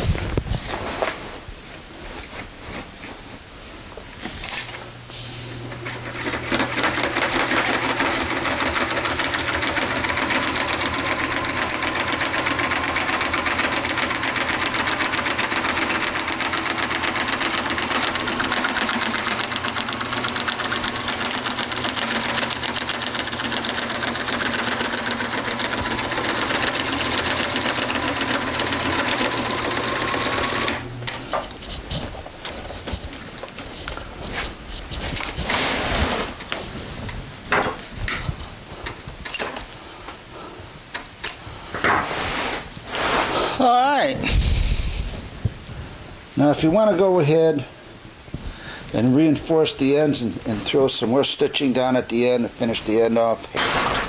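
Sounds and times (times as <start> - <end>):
sewing machine stitching: 5.8 - 32.1.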